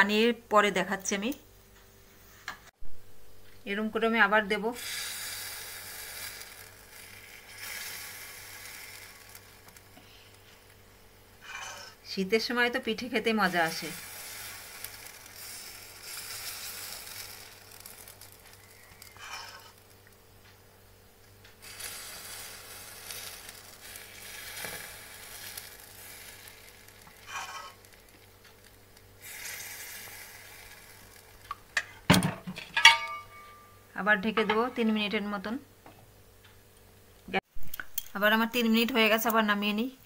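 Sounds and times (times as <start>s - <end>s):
batter sizzling in hot pan: 4.4s - 31.9s.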